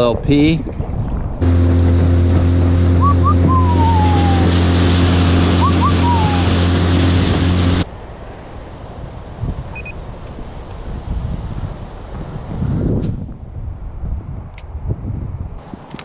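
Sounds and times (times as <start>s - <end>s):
heavy wind: 0.0s - 16.0s
water rushing: 0.7s - 9.0s
small boat motor running: 1.4s - 7.8s.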